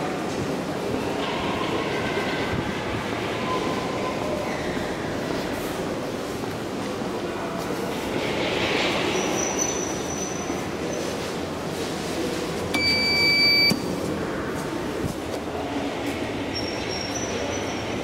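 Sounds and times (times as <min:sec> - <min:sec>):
railway station rumble: 0:00.0 - 0:18.0
electronic elevator beep: 0:12.8 - 0:13.8.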